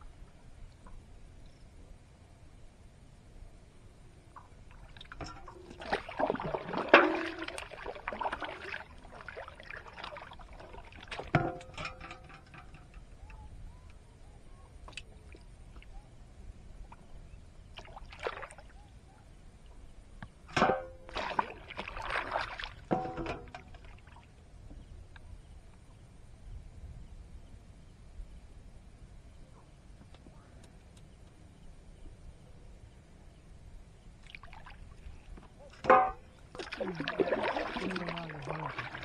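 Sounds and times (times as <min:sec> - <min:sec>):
water splashing against boat: 0:04.7 - 0:13.4, 0:17.7 - 0:18.8, 0:20.5 - 0:24.3, 0:34.2 - 0:39.0
metal plate splashing into water: 0:05.0 - 0:13.0, 0:20.5 - 0:24.0, 0:35.8 - 0:39.0.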